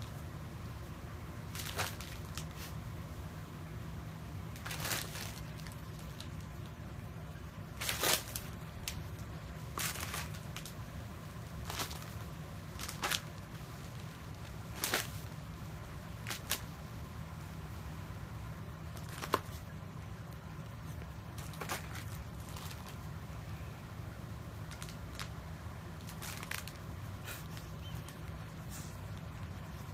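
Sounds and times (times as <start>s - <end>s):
steady low hum: 0.0s - 29.9s
wrappers and boxes crinkling: 1.5s - 2.8s, 4.5s - 6.8s, 7.7s - 10.8s, 11.5s - 15.4s, 16.2s - 16.8s, 18.9s - 19.8s, 20.6s - 23.1s, 24.7s - 25.4s, 26.0s - 29.9s.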